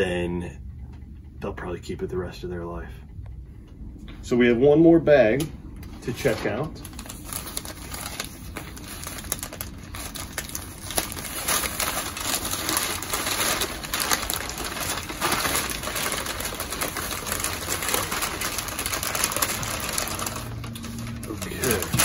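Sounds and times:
packing paper crinkling: 0:06.0 - 0:22.0.

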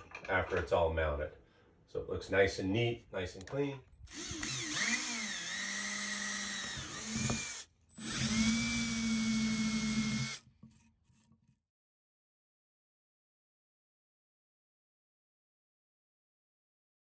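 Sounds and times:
cordless drill drilling plastic: 0:04.1 - 0:10.5.

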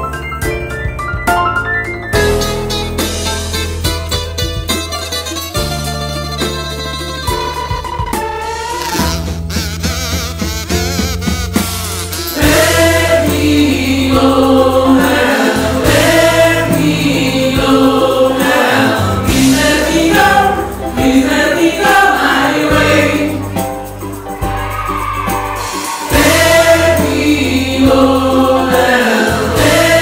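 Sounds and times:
sustained low bass notes: 0:09.0 - 0:21.9
choir singing: 0:12.3 - 0:24.0, 0:25.5 - 0:30.0.

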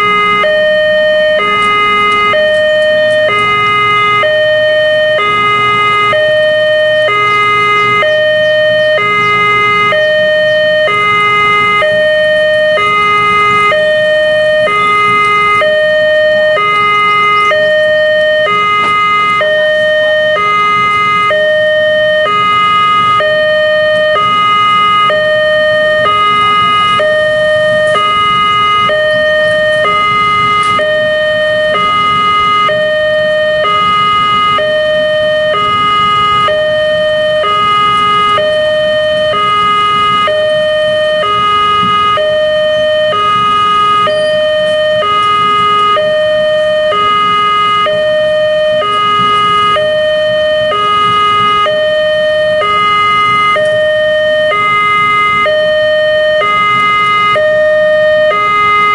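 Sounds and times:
two-tone crossing alarm: 0:00.0 - 0:58.9.

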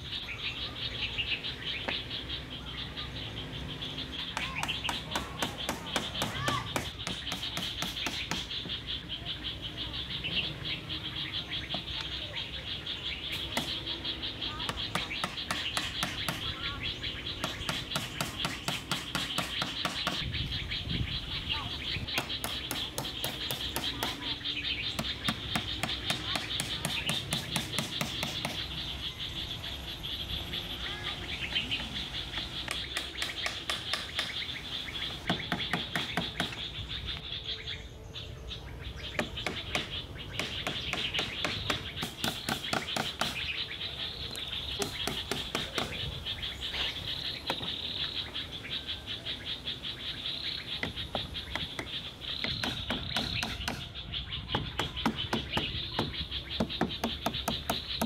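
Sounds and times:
hand tools knocking on wood: 0:04.3 - 0:08.8, 0:14.7 - 0:16.6, 0:17.4 - 0:20.2, 0:22.1 - 0:24.3, 0:25.0 - 0:28.7, 0:31.8 - 0:34.4, 0:35.2 - 0:36.6, 0:39.2 - 0:43.4, 0:44.8 - 0:46.0, 0:50.8 - 0:53.9, 0:54.5 - 0:58.0.

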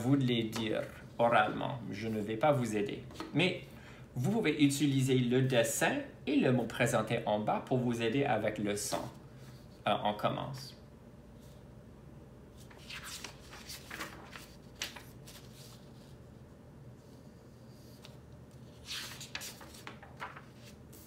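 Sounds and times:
paper cards rustling: 0:12.6 - 0:16.2, 0:17.9 - 0:21.0.

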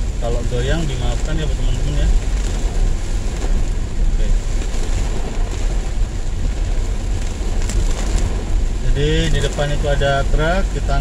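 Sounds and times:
car engine and tyre noise: 0:00.0 - 0:11.0
rain on windscreen: 0:00.0 - 0:11.0.

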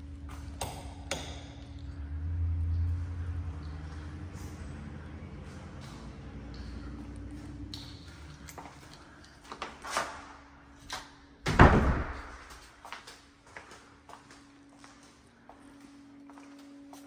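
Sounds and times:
loud door thud echoing: 0:11.4 - 0:12.5.

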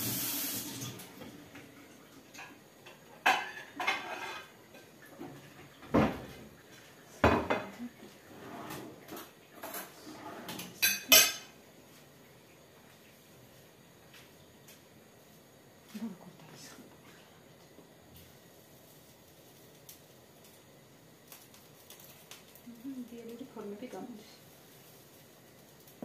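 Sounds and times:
dishes and cutlery clinking: 0:02.4 - 0:06.3, 0:08.6 - 0:11.6.

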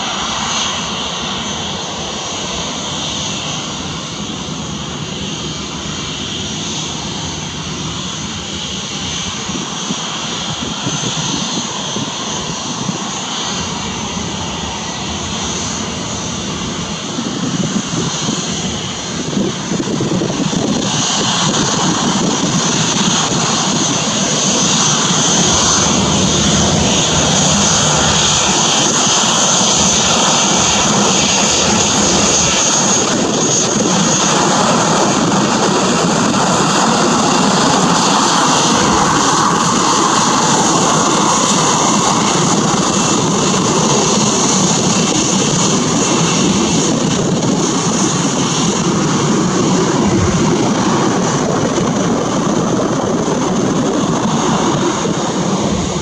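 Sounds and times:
jet engine whine: 0:00.0 - 0:56.0
continuous rushing noise: 0:22.7 - 0:35.6.

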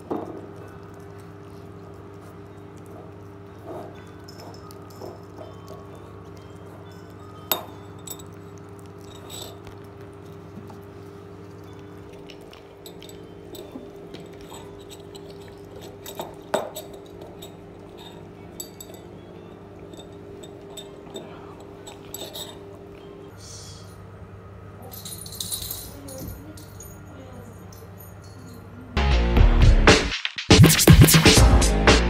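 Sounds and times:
spoon and dish clinking: 0:02.1 - 0:09.9, 0:11.4 - 0:23.3.

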